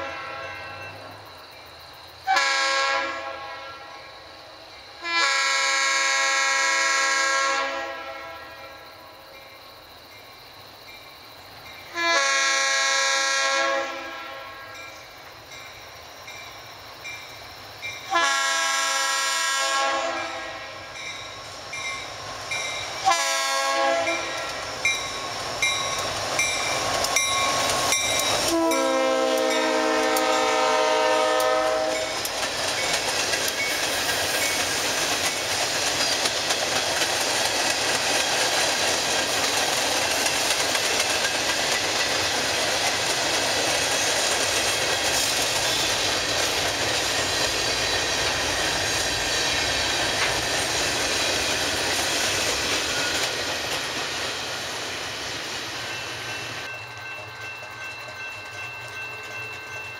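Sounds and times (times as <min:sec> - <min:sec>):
locomotive air horn blast: 0:00.0 - 0:00.8, 0:02.3 - 0:03.9, 0:05.0 - 0:08.6, 0:12.0 - 0:14.8, 0:18.1 - 0:20.9, 0:23.0 - 0:24.6, 0:28.5 - 0:32.1.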